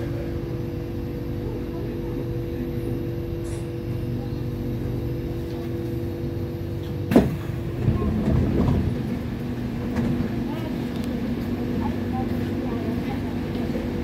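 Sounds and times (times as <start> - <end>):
train equipment hum: 0.0 - 14.0
sharp clunk: 7.1 - 7.5.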